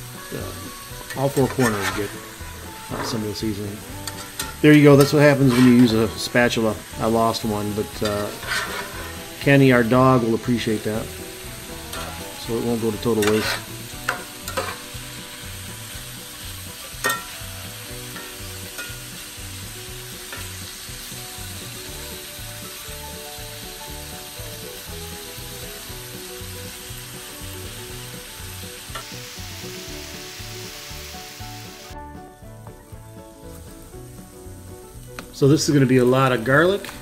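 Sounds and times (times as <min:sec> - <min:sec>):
meat sizzling in a skillet: 0:00.0 - 0:37.0
metal spatula scraping a pan: 0:00.2 - 0:19.4.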